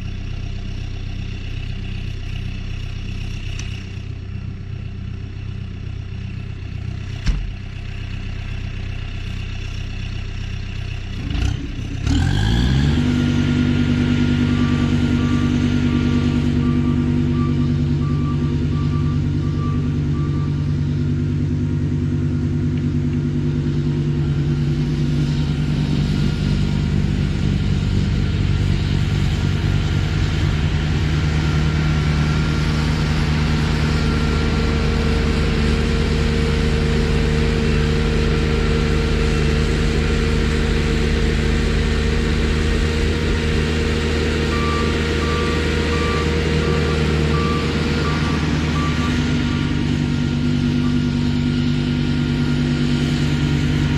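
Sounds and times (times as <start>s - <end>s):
tractor diesel engine running: 0.0s - 53.9s
reversing alarm beeping: 14.3s - 20.9s, 44.3s - 51.6s.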